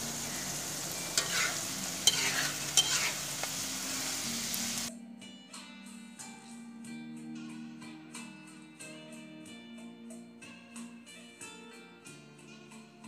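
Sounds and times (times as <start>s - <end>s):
metal spatula scraping a pan: 0.0s - 4.9s
shrimp sizzling in a wok: 0.0s - 4.9s.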